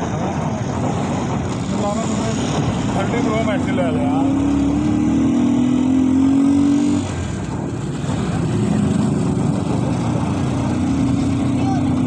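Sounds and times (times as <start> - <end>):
road and wind noise: 0.0 - 12.0
small vehicle engine running: 0.2 - 12.0.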